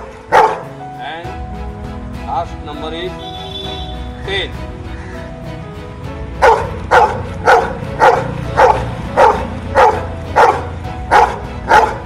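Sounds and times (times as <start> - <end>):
dog barking: 0.0 - 0.7, 6.4 - 12.0.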